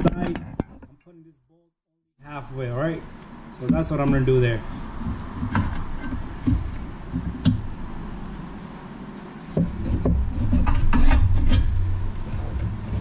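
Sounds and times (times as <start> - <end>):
rumbling scrape with knocks: 9.6 - 13.0.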